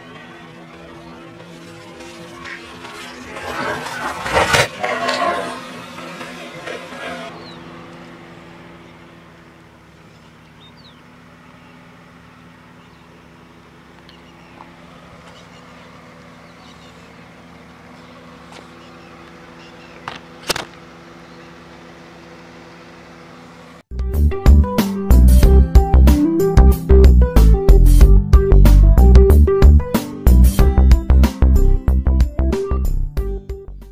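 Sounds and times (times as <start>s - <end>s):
car engine idling: 0.0s - 32.1s
watermelon bursting under tyre: 3.3s - 5.8s.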